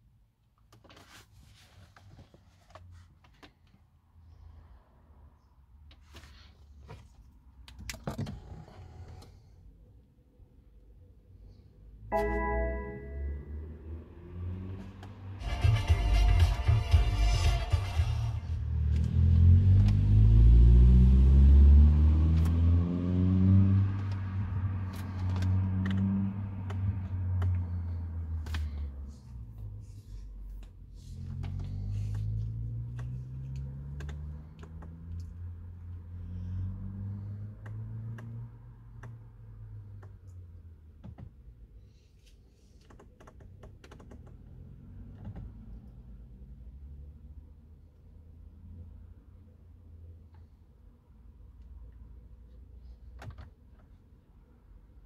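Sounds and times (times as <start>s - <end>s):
car engine revving: 18.5s - 29.8s.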